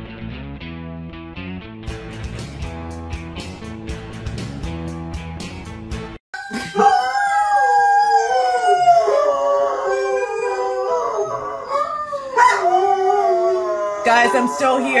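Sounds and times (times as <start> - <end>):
dogs howling: 6.5 - 15.0.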